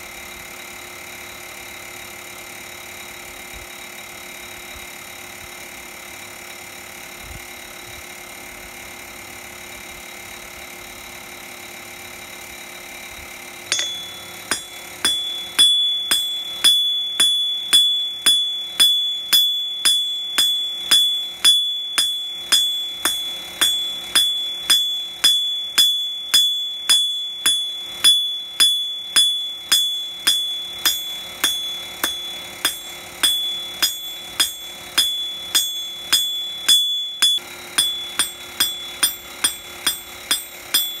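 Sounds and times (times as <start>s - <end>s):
hammer blows ringing on anvil: 13.7s - 41.0s.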